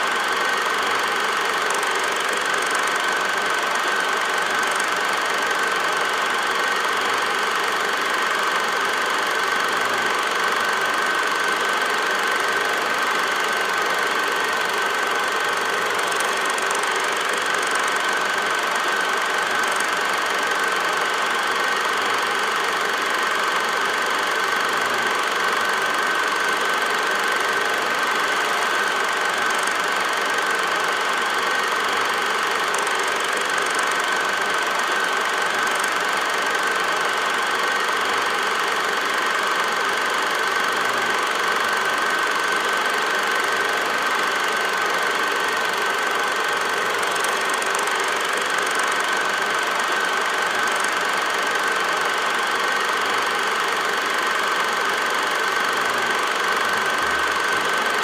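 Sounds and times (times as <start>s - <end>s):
film projector whirring: 0.0s - 58.0s.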